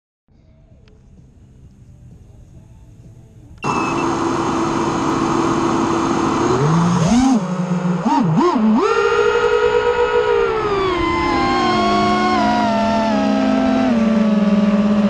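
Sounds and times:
drone motors whining: 0:02.9 - 0:15.0.

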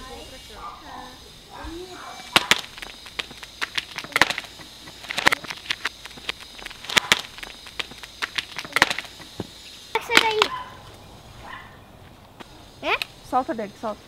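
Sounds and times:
hand tool striking dry soil: 0:02.3 - 0:09.5.

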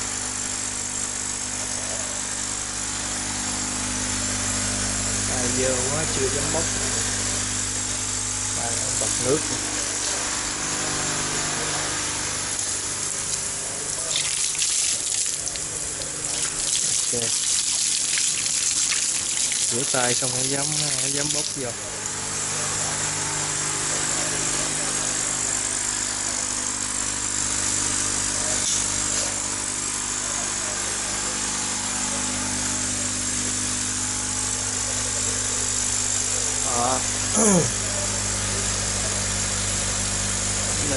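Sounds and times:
low motor hum: 0:00.0 - 0:14.6
air pump buzzing: 0:00.0 - 0:40.9
water splashing onto concrete: 0:14.0 - 0:21.6.

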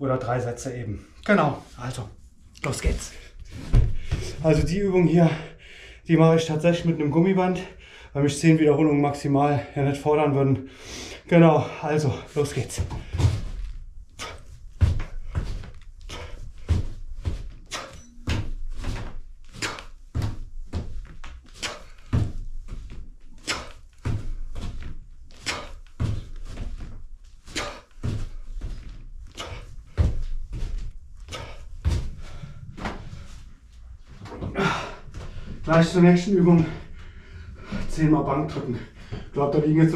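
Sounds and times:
hands and feet thumping floor: 0:02.6 - 0:04.9, 0:12.4 - 0:39.8.

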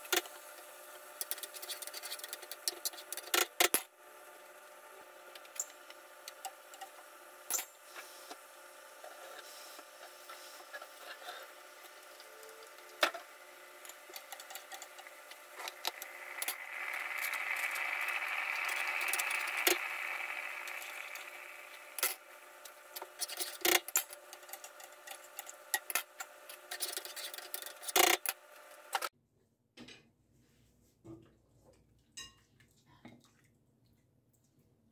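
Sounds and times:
steady hum: 0:07.9 - 0:25.8
utensils and cookware clattering: 0:13.8 - 0:22.2, 0:22.9 - 0:28.4
hissing: 0:13.8 - 0:23.3.

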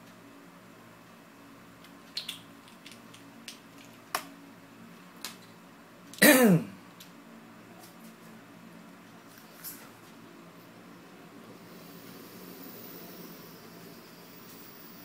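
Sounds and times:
man clearing his throat: 0:06.2 - 0:06.8.

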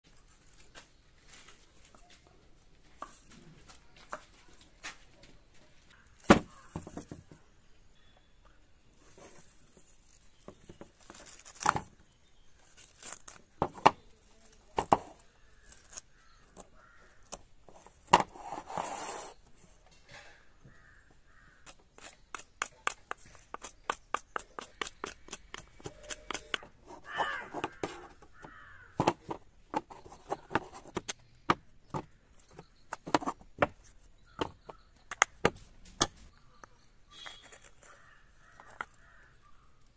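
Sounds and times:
husk fibre tearing: 0:09.3 - 0:17.3, 0:20.8 - 0:27.7
machete chopping and scraping: 0:21.6 - 0:28.1
coconut shells knocking together: 0:21.6 - 0:29.9.

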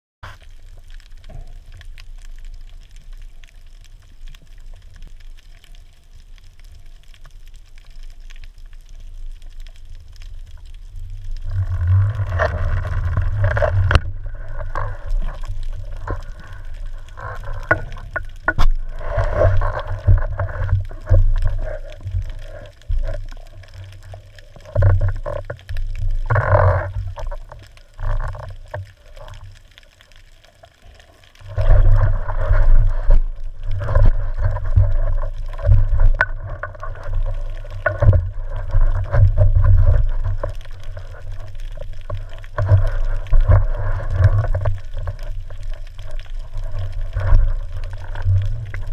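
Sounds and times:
rushes of moving water: 0:00.2 - 0:48.9
underwater low rumble: 0:00.2 - 0:48.9.

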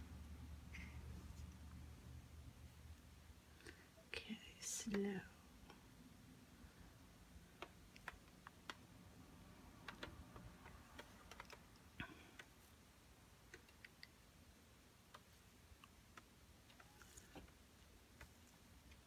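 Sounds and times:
light clicks and ticks: 0:07.5 - 0:08.8, 0:09.8 - 0:12.6.

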